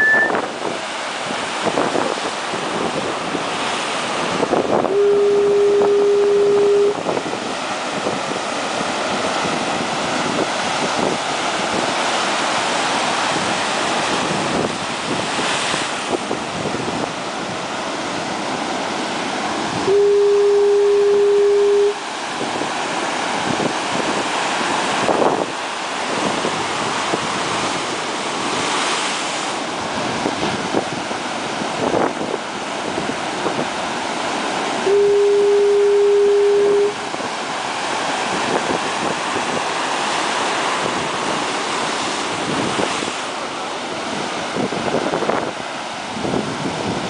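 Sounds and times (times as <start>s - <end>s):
ocean surf breaking: 0.0s - 47.0s
foghorn blasts: 4.6s - 7.2s, 19.7s - 22.1s, 34.7s - 37.1s.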